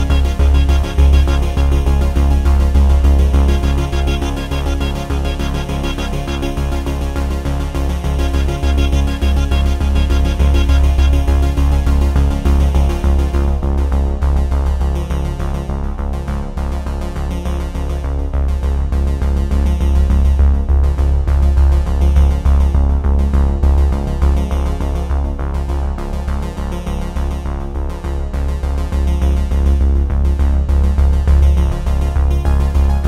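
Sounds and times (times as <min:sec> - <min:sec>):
upbeat electronic music: 0:00.0 - 0:13.6, 0:31.8 - 0:33.0.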